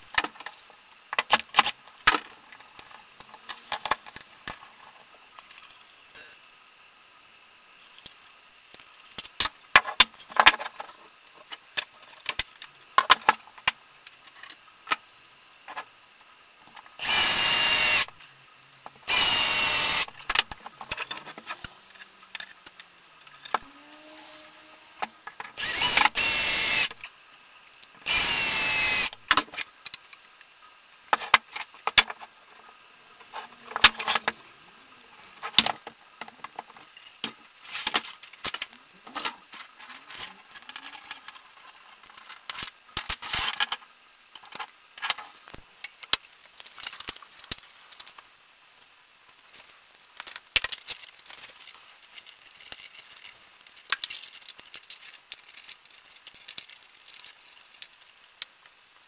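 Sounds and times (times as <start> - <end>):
power drill driving screws: 17.0 - 18.1, 19.0 - 20.1, 25.6 - 27.0, 28.0 - 29.2
wooden pieces clicking and knocking: 52.2 - 58.6.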